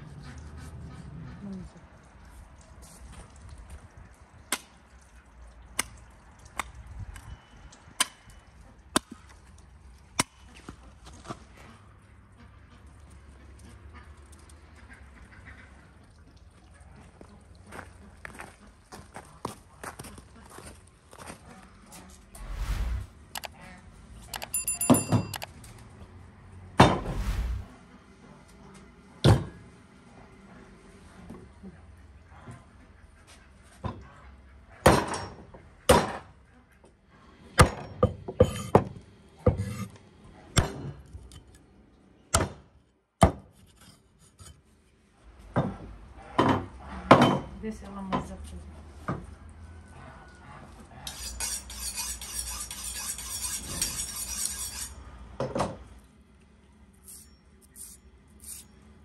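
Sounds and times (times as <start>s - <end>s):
clicks: 23.3s - 23.5s, 24.3s - 25.5s.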